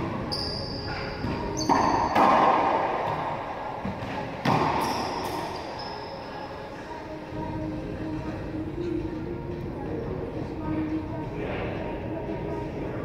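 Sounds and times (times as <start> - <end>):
sneakers squeaking on hardwood: 0.3 - 2.5
racquetball hits echoing: 1.2 - 5.6.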